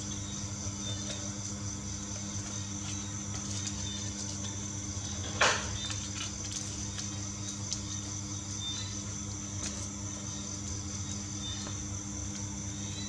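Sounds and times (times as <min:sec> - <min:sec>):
low hum with high whine: 0:00.0 - 0:13.0.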